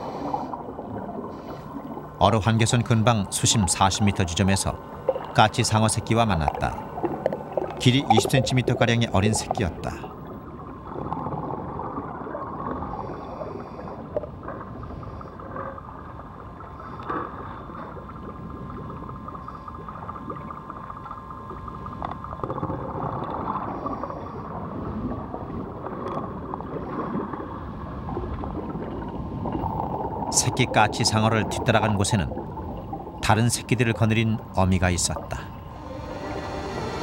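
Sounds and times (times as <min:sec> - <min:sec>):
faint even hum: 0:00.0 - 0:37.0
gurgling water: 0:00.0 - 0:37.0
low underwater rumble: 0:02.8 - 0:30.3, 0:35.2 - 0:37.0.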